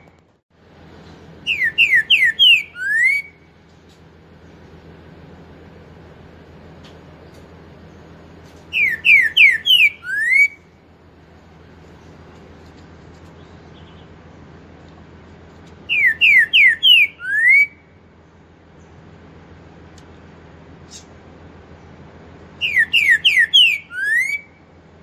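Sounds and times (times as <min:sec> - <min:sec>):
bird whistling song: 0:01.4 - 0:03.5, 0:08.7 - 0:10.7, 0:15.8 - 0:18.0, 0:22.6 - 0:24.7.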